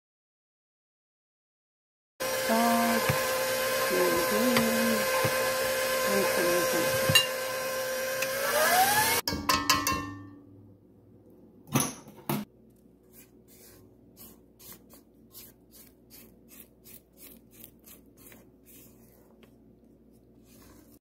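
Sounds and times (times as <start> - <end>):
spatula stirring batter: 2.2 - 8.3, 12.7 - 21.0
electric mixer running: 2.2 - 9.2
spatula knocking on metal bowl: 9.3 - 10.2.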